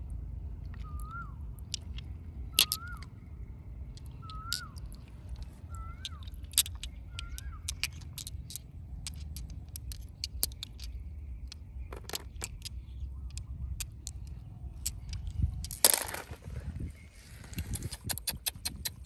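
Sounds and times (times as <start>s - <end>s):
low rumble: 0.0s - 17.8s
stones clicking in a hand: 0.6s - 3.1s, 3.9s - 16.4s.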